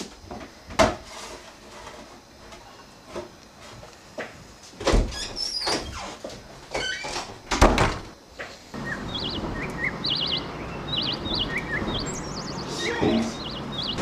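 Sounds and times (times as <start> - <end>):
outdoor hiss: 0.0 - 14.0
small birds chirping: 8.7 - 14.0.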